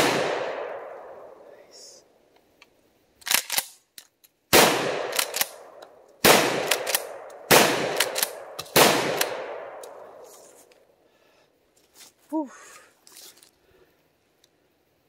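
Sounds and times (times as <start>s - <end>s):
shotgun shots with echo: 0.0s - 1.1s, 4.5s - 5.4s, 6.2s - 9.8s
shotgun pump racking clicks: 2.5s - 4.4s, 5.1s - 5.9s, 8.0s - 10.0s.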